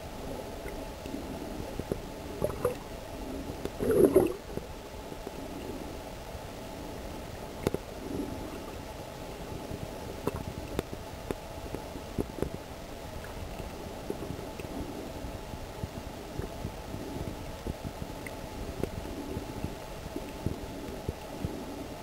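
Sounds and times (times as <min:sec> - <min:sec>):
muffled underwater rush: 0:00.0 - 0:04.8.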